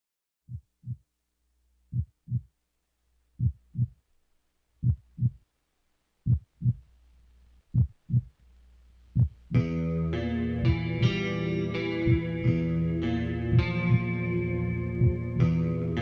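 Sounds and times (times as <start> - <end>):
heartbeat thumps: 0.5 - 1.1, 1.9 - 2.5, 3.4 - 4.0, 4.8 - 5.4, 6.2 - 6.9, 7.7 - 8.4, 9.1 - 9.6, 12.1 - 12.4, 13.5 - 14.1, 15.0 - 15.4
faint low hum: 0.5 - 9.7.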